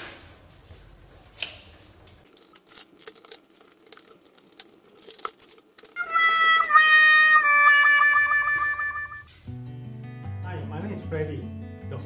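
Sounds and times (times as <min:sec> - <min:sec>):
metallic clicks of plumbing fittings: 0:01.3 - 0:06.0.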